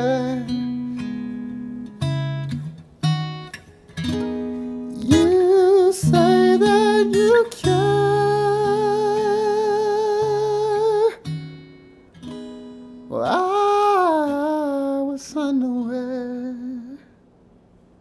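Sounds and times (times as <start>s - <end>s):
soft acoustic guitar: 0.0s - 18.0s
man singing long notes: 5.0s - 11.2s, 13.1s - 17.1s.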